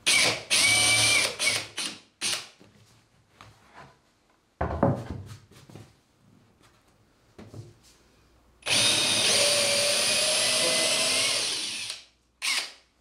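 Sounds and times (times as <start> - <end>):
cordless drill boring into wood: 0.0 - 2.5, 8.6 - 12.8.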